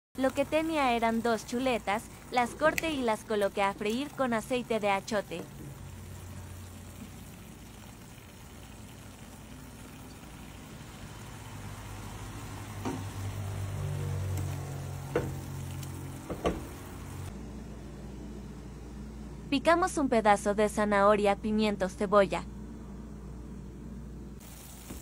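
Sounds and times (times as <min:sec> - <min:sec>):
meat sizzling in a pot: 0:00.2 - 0:17.3, 0:24.4 - 0:25.0.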